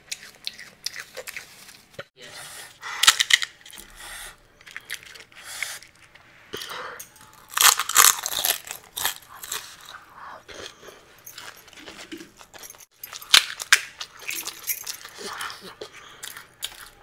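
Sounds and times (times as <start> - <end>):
wet chewing: 0.0 - 2.1, 7.3 - 17.0
crisp crunching of fried shells: 7.2 - 10.1, 16.2 - 17.0.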